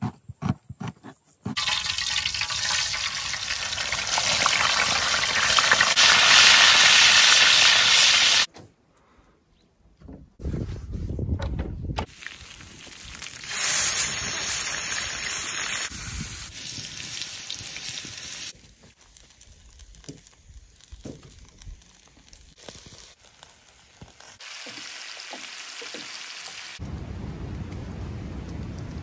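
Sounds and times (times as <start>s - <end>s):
fire crackling and popping: 1.6s - 8.5s, 12.0s - 29.0s
food sizzling on a griddle: 1.6s - 8.5s, 12.1s - 26.8s.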